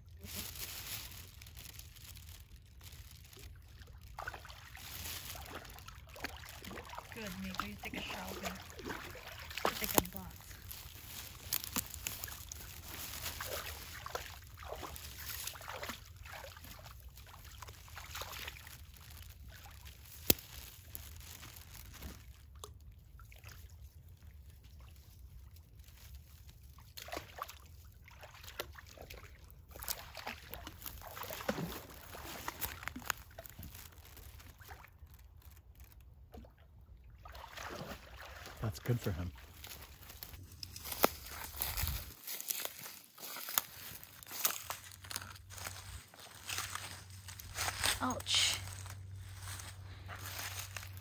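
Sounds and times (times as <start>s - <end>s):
dog splashing in water: 4.1s - 10.6s, 12.2s - 19.8s, 27.0s - 33.4s, 37.2s - 38.7s.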